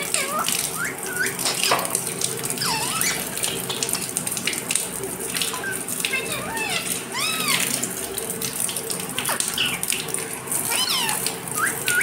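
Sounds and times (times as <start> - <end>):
water running and splashing: 0.0 - 12.0
bird chirps and whistles: 10.7 - 12.0.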